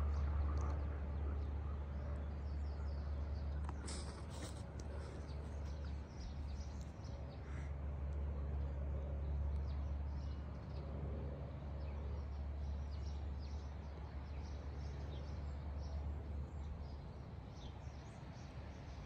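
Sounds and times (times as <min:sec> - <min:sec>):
small birds chirping: 0:00.0 - 0:08.3
low outdoor rumble: 0:00.0 - 0:19.0.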